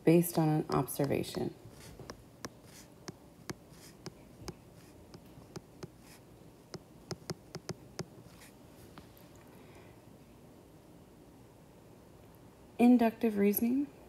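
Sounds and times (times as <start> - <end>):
stylus tapping on glass screen: 0.7 - 6.2, 6.8 - 8.1.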